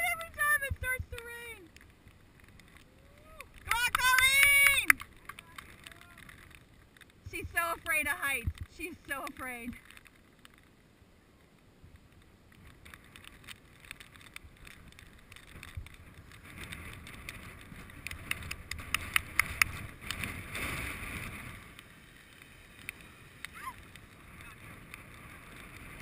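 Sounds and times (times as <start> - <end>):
zip line trolley whirring: 13.1 - 26.0.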